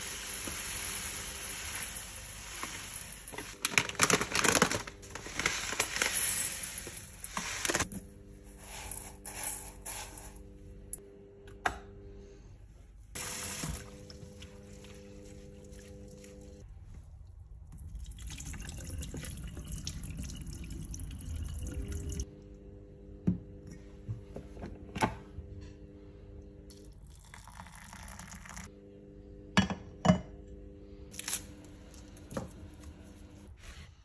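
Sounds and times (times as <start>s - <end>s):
steady low hum: 4.8s - 18.2s, 20.3s - 27.6s, 28.4s - 33.6s.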